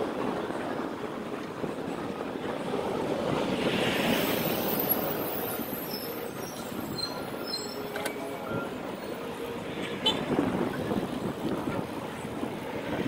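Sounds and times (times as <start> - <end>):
bus passing: 0.0 - 13.0
faint high squeals: 4.6 - 8.7.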